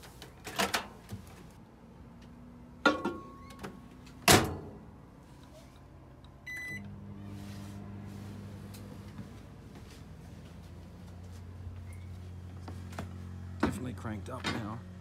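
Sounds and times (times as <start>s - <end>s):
microwave running hum: 6.2s - 12.3s.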